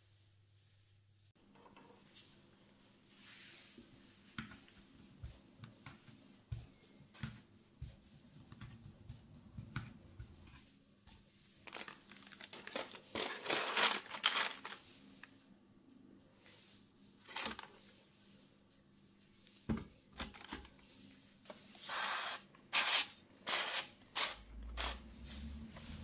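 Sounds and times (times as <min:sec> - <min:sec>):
crinkling and rustling: 0:04.5 - 0:15.4, 0:17.2 - 0:18.1, 0:19.6 - 0:21.8.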